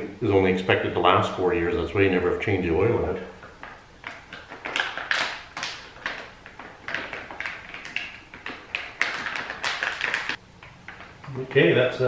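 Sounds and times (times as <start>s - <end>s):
short crackles and taps: 3.4s - 11.4s
plastic pouch crinkling: 4.1s - 10.4s.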